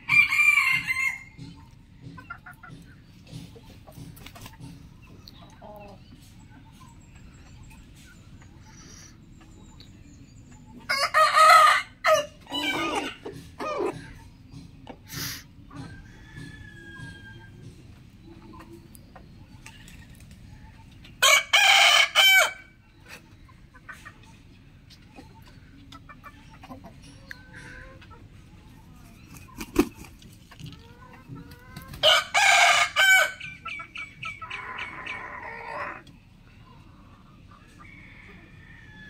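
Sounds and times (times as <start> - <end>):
rooster crowing: 0.0 - 1.3, 32.0 - 33.4, 37.8 - 39.0.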